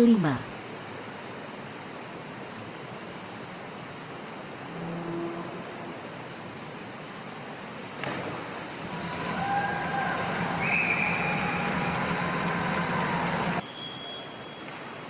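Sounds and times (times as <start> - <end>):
whistles: 9.4 - 12.1, 13.0 - 14.9
crowd noise: 10.1 - 13.6.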